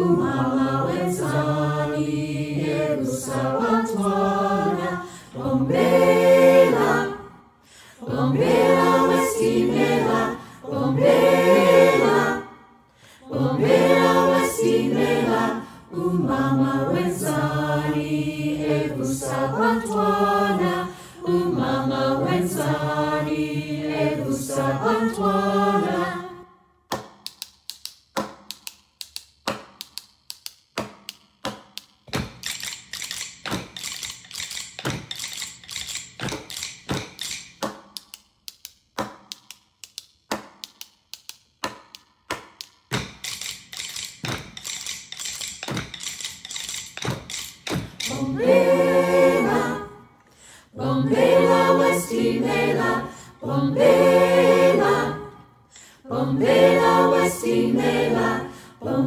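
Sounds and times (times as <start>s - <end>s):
choir singing a cappella: 0.0s - 26.7s, 47.7s - 59.0s
sticks and spoons tapping: 26.9s - 48.4s.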